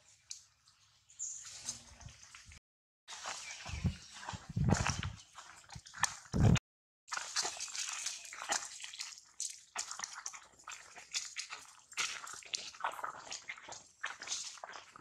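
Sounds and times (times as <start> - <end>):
dry leaves rustling underfoot: 3.1 - 6.1.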